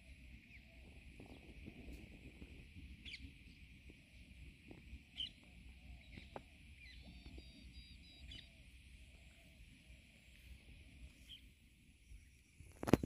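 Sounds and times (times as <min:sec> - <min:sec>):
steady high hiss: 0:00.0 - 0:13.0
faint high chirps: 0:05.1 - 0:13.0.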